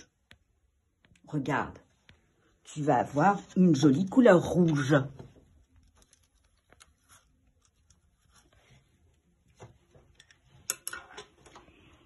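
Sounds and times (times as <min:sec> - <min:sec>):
paintbrush scratching on paper: 0:05.8 - 0:09.3.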